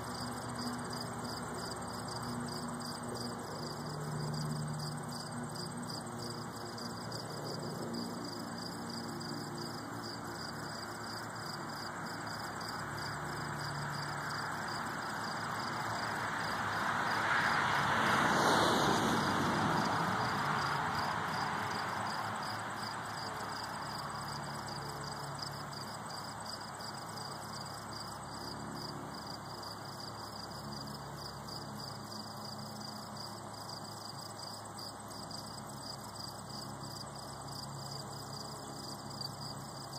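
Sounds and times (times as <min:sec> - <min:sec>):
crickets chirping: 0:00.0 - 0:39.9
vehicle passing: 0:00.1 - 0:26.3.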